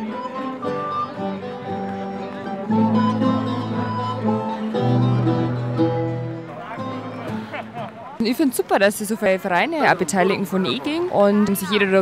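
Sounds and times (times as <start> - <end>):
acoustic guitars playing a tune: 0.0 - 8.1
deep low guitar notes: 1.1 - 7.9.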